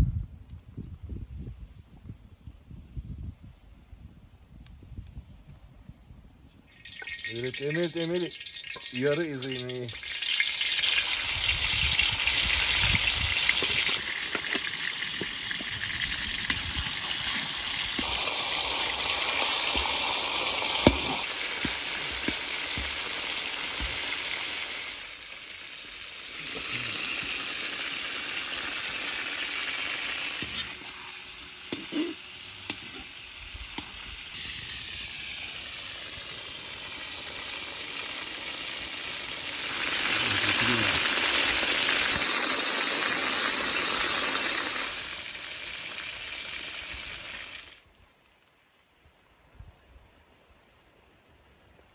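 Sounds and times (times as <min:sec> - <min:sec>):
chicken sizzling in hot oil: 0:06.7 - 0:47.8.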